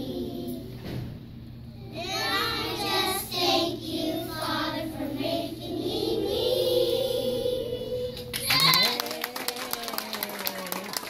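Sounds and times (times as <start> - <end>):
children singing in unison: 2.0 - 8.2.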